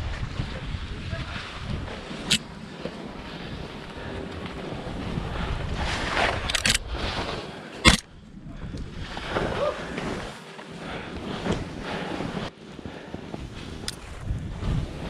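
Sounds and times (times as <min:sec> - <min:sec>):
wind on microphone: 0:00.0 - 0:02.5, 0:03.4 - 0:07.2, 0:07.8 - 0:10.0, 0:13.0 - 0:15.0
skis hissing through powder: 0:00.9 - 0:07.8.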